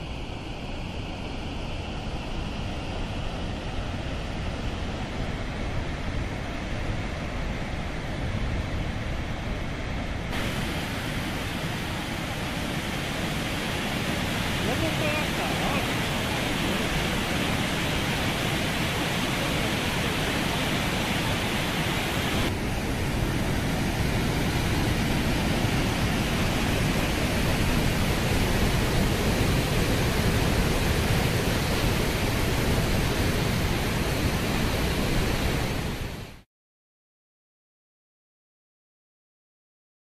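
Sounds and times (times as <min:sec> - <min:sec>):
water rushing over spillway: 0:02.8 - 0:36.4.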